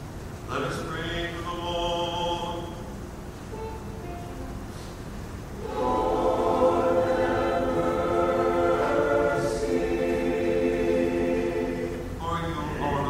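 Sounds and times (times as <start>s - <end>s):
church choir singing a hymn: 5.6s - 13.0s.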